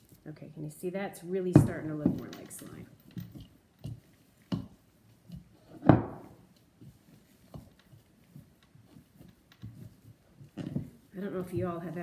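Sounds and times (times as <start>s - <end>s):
spoon stirring thick slime: 2.7s - 12.0s.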